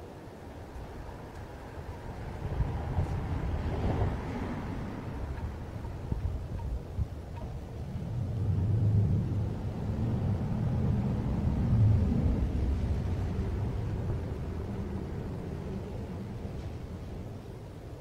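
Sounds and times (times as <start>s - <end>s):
car passing: 2.0s - 6.6s, 7.6s - 17.8s.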